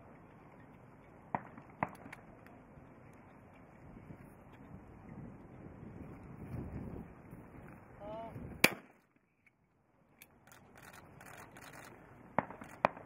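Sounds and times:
shotgun shot: 8.6s - 9.0s, 12.4s - 13.0s.

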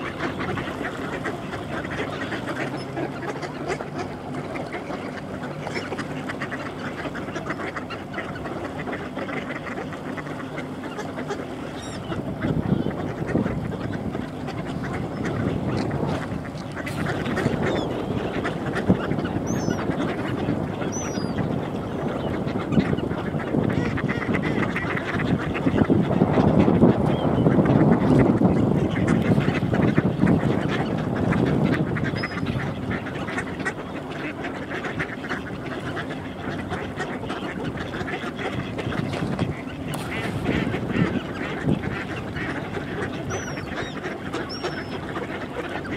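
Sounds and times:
flock of ducks quacking: 0.0s - 45.9s.

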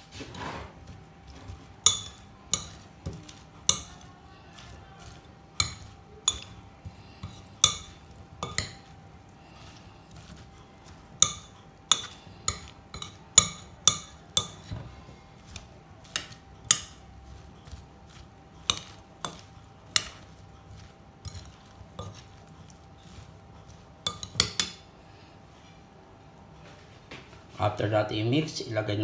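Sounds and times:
vegetables squishing: 0.0s - 24.8s
faint steady hum: 0.0s - 29.0s
spoon clinking glass bowl: 1.8s - 9.0s, 11.1s - 14.7s, 18.6s - 23.2s, 24.0s - 24.8s.

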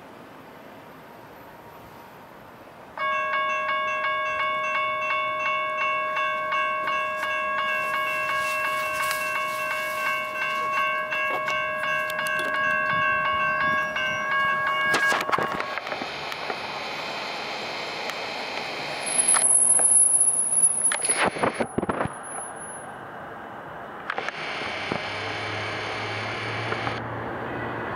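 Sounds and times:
electronic crossing bell ringing: 3.0s - 16.8s, 18.8s - 21.1s.

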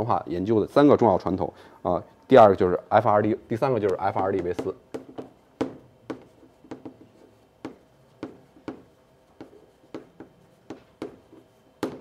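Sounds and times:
chalk tapping on a blackboard: 3.8s - 12.0s.

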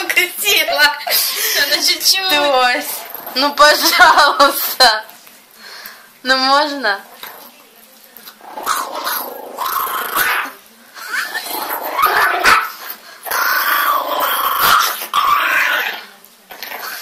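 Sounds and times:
small dog growling: 2.8s - 3.8s, 8.2s - 17.0s.

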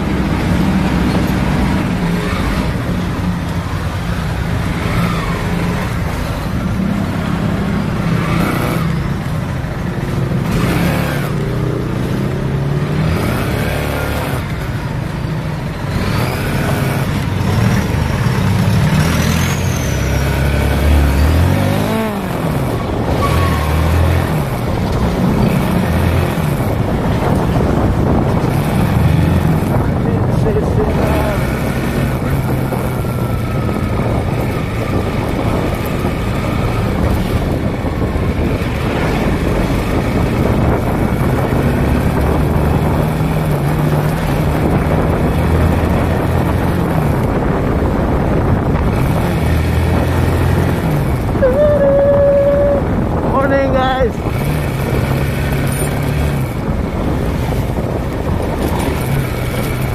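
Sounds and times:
motorcycle engine accelerating: 0.0s - 59.9s
road traffic: 0.0s - 59.9s.

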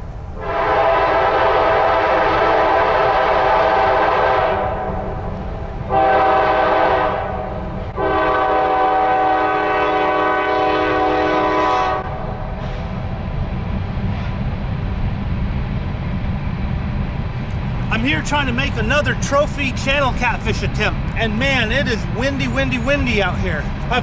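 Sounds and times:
train horn blasts: 0.4s - 5.3s, 5.9s - 13.0s
wind rumble on microphone: 12.0s - 20.0s.

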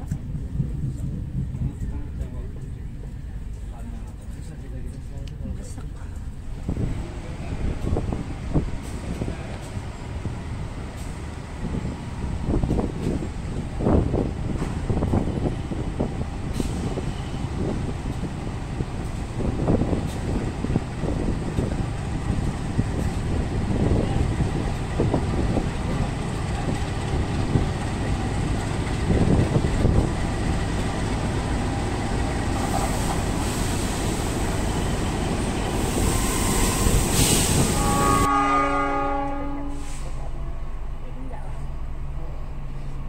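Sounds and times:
train wheels rumbling on rail: 0.0s - 43.0s
train knocks: 7.6s - 39.7s
train hiss: 16.4s - 17.8s, 31.2s - 38.3s, 39.6s - 40.5s.

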